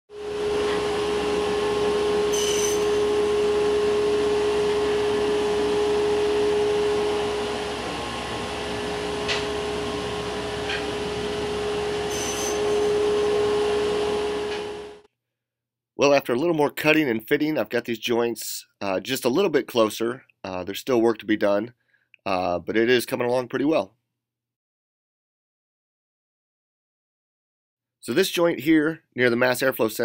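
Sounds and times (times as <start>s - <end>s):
machine drone with hiss: 0.1s - 15.0s.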